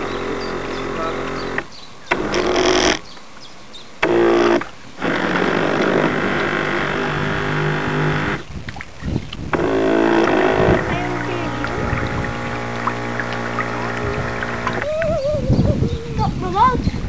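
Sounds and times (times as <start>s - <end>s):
model boat motor running: 0.0s - 3.1s, 4.0s - 8.5s, 9.5s - 15.5s
water noise: 0.0s - 17.0s.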